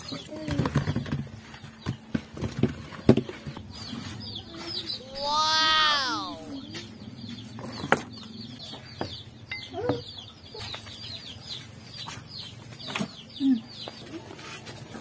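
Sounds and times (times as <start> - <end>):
birds chirping: 3.4 - 14.4.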